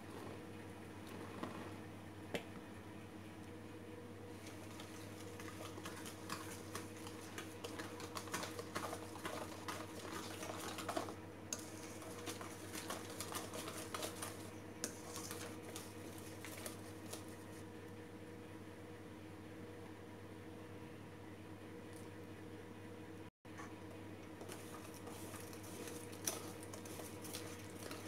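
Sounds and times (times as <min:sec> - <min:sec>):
whisk clicking and scraping bowl: 0:04.4 - 0:17.6, 0:24.2 - 0:28.0.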